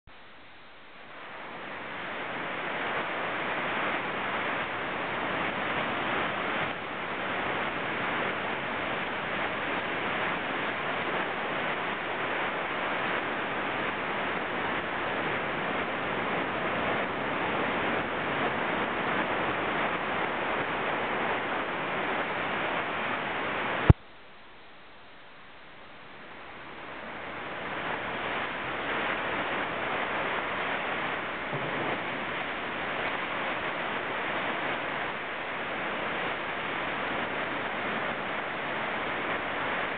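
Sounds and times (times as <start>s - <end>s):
ocean surf breaking: 27.4s - 39.9s.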